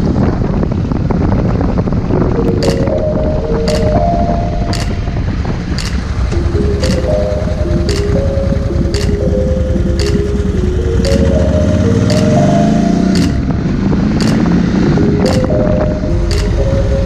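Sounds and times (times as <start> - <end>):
motorcycle engine accelerating: 0.0 - 17.0
background music with steady beat: 2.4 - 13.6, 14.2 - 17.0.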